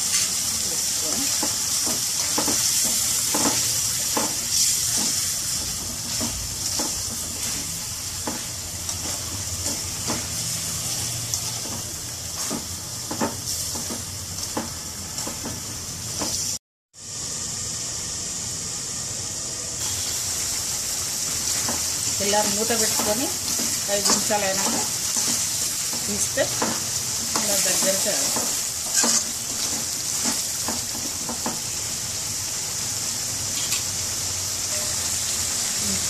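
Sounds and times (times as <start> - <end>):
food sizzling in oil: 0.0 - 36.0
metal spoon scraping a pan: 21.5 - 31.1.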